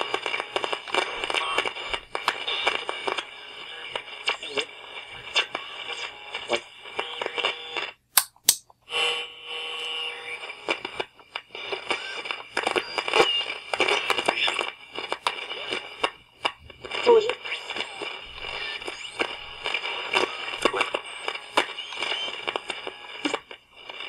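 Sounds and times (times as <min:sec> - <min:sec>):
radio static crackling: 0:00.0 - 0:08.0, 0:08.9 - 0:24.0
radio whistling tones: 0:10.0 - 0:16.1, 0:16.8 - 0:24.0.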